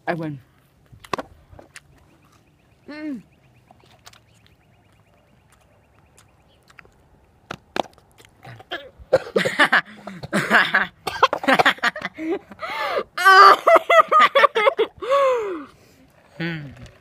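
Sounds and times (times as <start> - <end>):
girls coughing: 8.7 - 11.8
girls laughing and squealing: 13.2 - 15.4.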